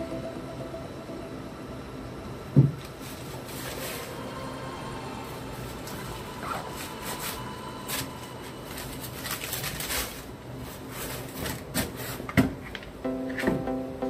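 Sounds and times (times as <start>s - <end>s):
faint steady hum: 0.0s - 14.0s
tissue paper rustling: 5.8s - 12.3s.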